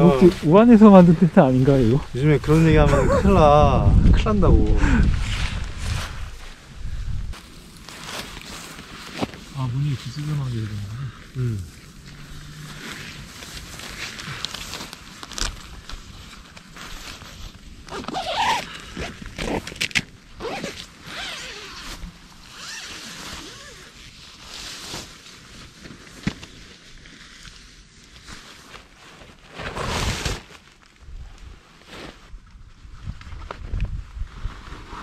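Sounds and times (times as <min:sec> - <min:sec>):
nylon fabric rustling: 0:05.2 - 0:10.9, 0:12.0 - 0:18.7, 0:19.5 - 0:26.3
tent zipper pulled: 0:12.0 - 0:15.5, 0:17.0 - 0:25.1, 0:29.5 - 0:30.6.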